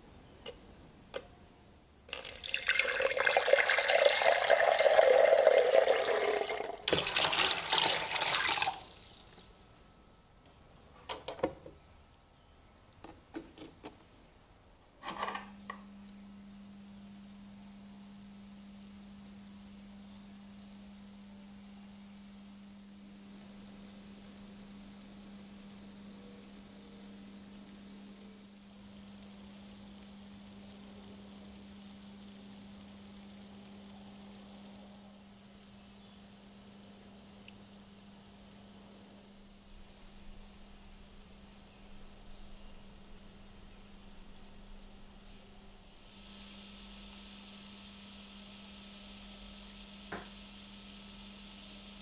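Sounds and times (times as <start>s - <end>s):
gas bubbles fizzing: 2.1s - 9.7s
power supply low hum: 15.4s - 52.0s.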